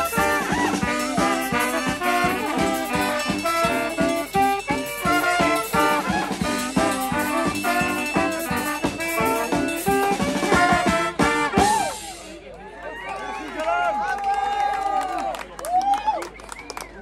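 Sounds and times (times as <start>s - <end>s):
drum kit beat: 0.0s - 12.3s
brass band playing upbeat tune: 0.0s - 12.4s.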